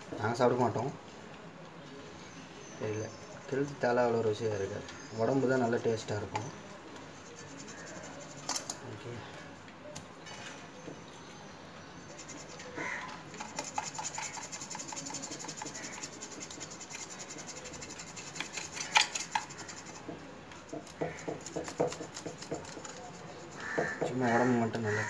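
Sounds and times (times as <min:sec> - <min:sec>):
scraping fish skin: 0:12.1 - 0:20.1, 0:20.7 - 0:24.1
scattered knocks: 0:18.8 - 0:23.0.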